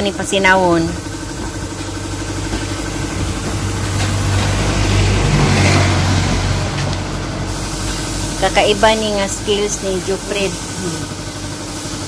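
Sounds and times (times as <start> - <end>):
air compressor motor hum: 0.0 - 12.0.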